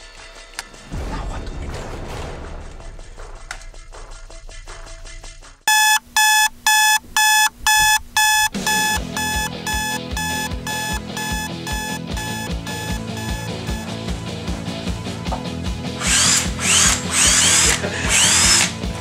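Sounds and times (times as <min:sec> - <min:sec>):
music with steady beat: 0:03.0 - 0:18.6
alarm clock beeping: 0:05.7 - 0:13.9.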